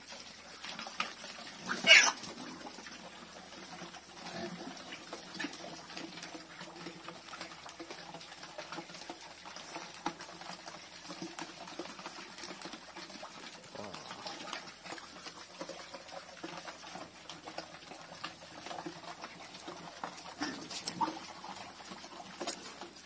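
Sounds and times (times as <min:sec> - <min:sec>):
pigs slurping and chewing: 0:00.0 - 0:23.0
pig squealing: 0:01.6 - 0:02.3.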